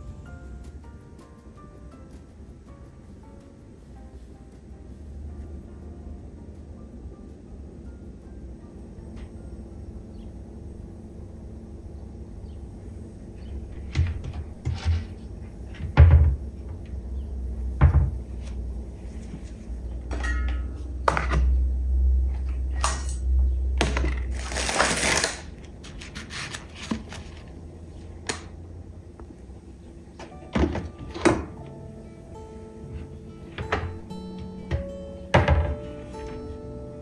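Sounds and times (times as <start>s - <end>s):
steady low hum: 0.0s - 37.0s
knocks and thunks: 15.7s - 16.8s, 17.8s - 18.2s, 34.7s - 35.9s
rustling or scraping: 24.1s - 27.6s.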